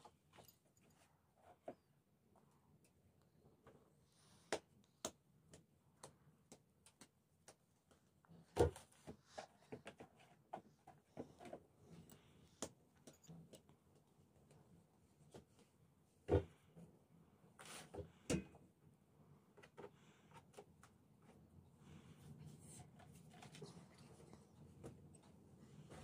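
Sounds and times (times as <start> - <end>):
hands tapping bread dough: 4.5 - 8.0.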